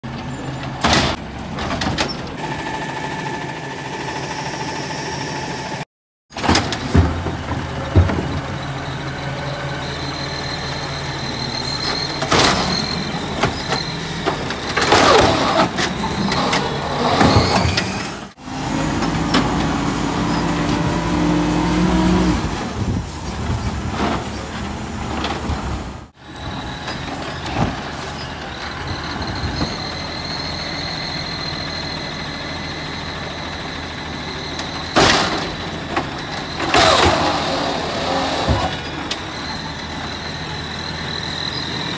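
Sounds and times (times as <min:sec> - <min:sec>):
hydraulic arm whining: 0:06.4 - 0:23.7, 0:26.2 - 0:41.9
truck engine running: 0:06.8 - 0:17.5.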